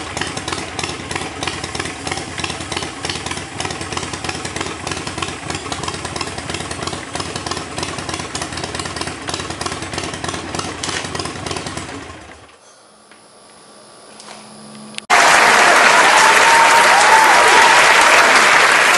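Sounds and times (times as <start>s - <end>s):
motorcycle engine running: 0.0s - 15.1s
crowd applause and cheering: 15.1s - 18.9s.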